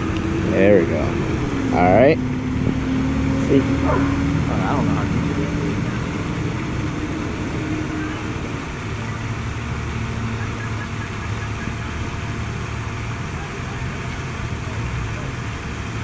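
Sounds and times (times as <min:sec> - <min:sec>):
low hum: 0:00.0 - 0:16.0
outdoor rumble and hiss: 0:00.0 - 0:16.0.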